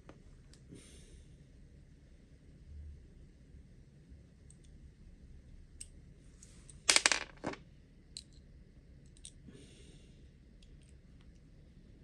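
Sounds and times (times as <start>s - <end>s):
small hard parts clattering: 6.8s - 7.6s.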